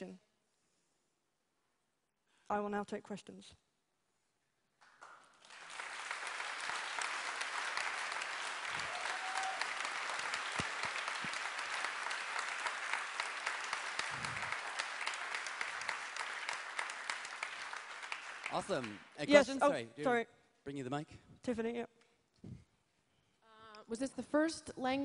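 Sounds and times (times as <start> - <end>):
audience applauding: 4.8 - 19.6.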